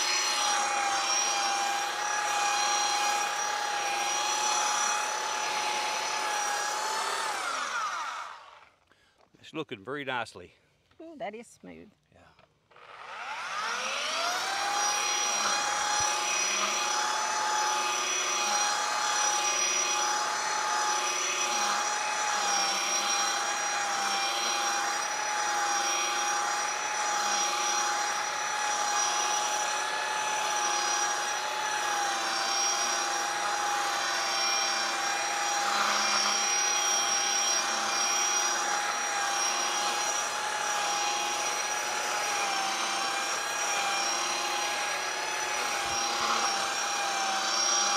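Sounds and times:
electric sander motor whine: 0.0s - 8.8s, 12.7s - 47.9s
sanding pad hissing on wood: 13.6s - 47.9s.

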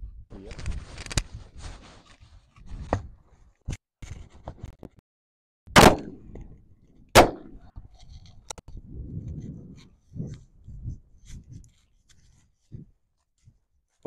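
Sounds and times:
shotgun shots with ringing tail: 5.7s - 6.4s, 7.2s - 7.6s.

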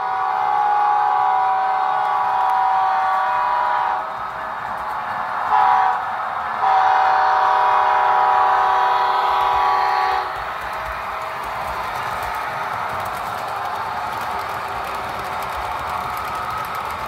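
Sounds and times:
train air horn blasts: 0.0s - 4.1s, 5.5s - 6.0s, 6.6s - 10.4s
train running noise: 0.0s - 17.0s.

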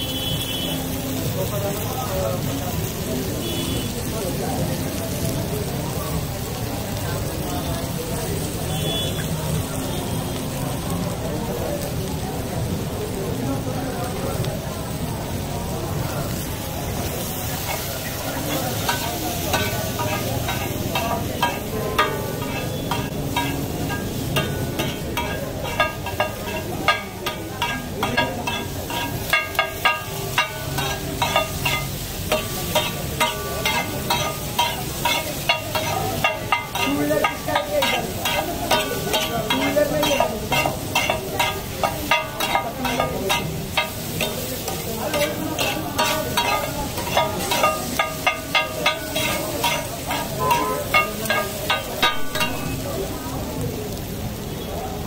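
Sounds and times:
food sizzling on griddle: 0.0s - 55.0s
metal spatulas clattering on griddle: 17.1s - 52.8s.

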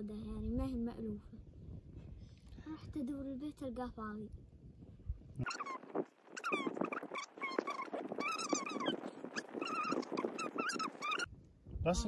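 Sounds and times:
dog whining: 5.4s - 5.8s, 6.4s - 11.3s.

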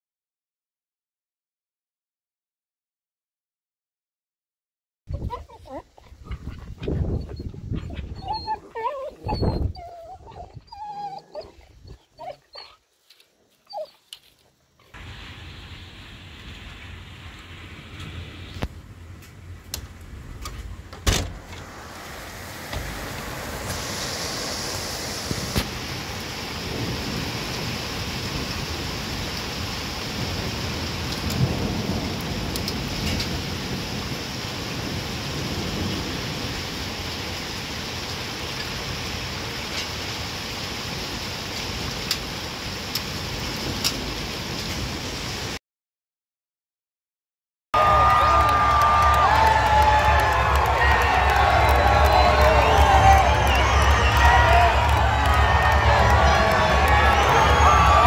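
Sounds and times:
rain: 5.1s - 45.6s, 47.8s - 58.0s
thunder rumbling: 15.0s - 37.0s, 47.9s - 58.0s.

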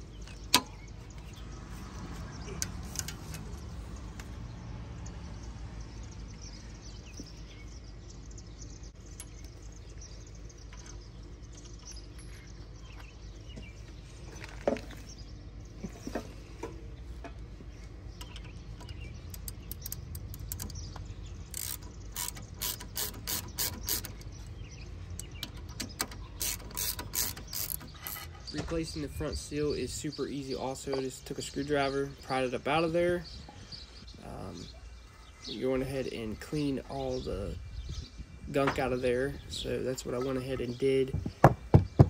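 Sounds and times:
ratchet wrench clicking: 18.2s - 24.4s, 25.2s - 28.3s.

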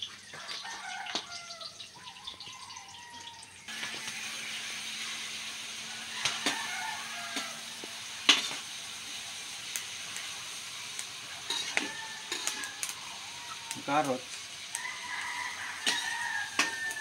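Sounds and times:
meat sizzling in a wok: 0.0s - 17.0s
metal spatula scraping a pan: 6.2s - 8.8s, 10.9s - 12.9s, 15.7s - 17.0s.

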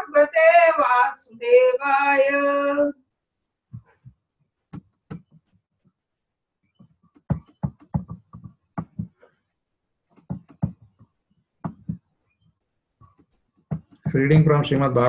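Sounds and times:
faint voice over video call: 14.1s - 15.0s.

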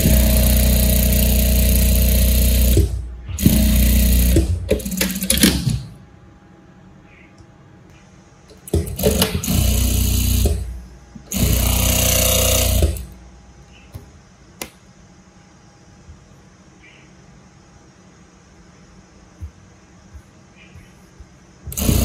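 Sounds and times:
sewing machine stitching: 0.0s - 5.8s, 8.7s - 10.7s, 11.3s - 13.1s, 21.7s - 22.0s.

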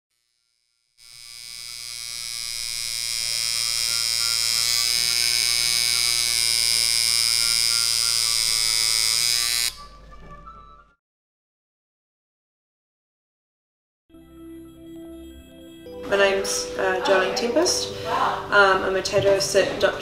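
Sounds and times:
tattoo machine buzzing: 0.1s - 10.0s.

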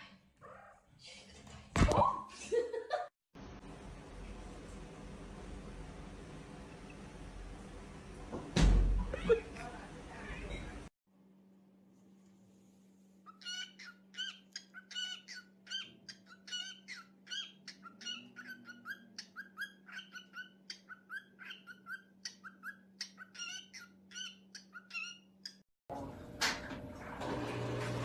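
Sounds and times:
cockatiel chirping: 13.3s - 25.6s.

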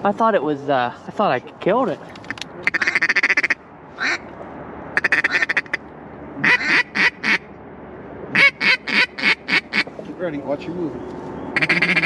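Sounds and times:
duck call chatter and quacks: 2.2s - 4.2s, 5.0s - 5.8s, 6.4s - 7.5s, 8.3s - 10.0s, 11.6s - 12.0s.

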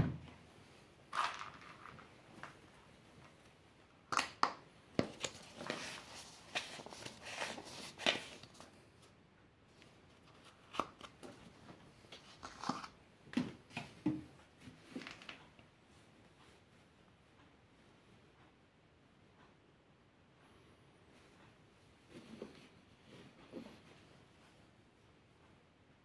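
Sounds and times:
plastic funnel clicks and knocks: 4.1s - 5.3s.

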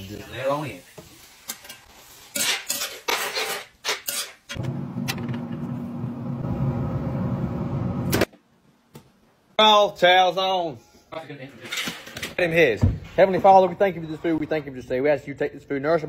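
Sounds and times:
metal utensils clattering on cookware: 1.5s - 4.6s, 11.6s - 12.4s.

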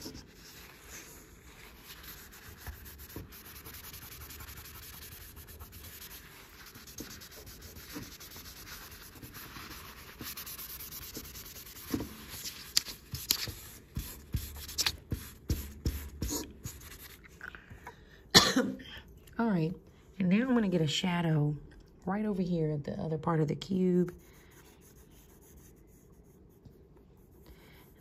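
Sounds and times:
pencil shading on paper: 0.0s - 17.0s.

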